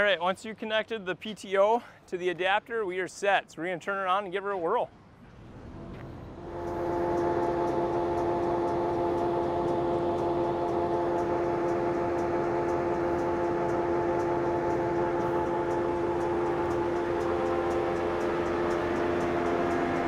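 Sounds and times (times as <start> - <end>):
harvester machinery whine: 5.2 - 20.0.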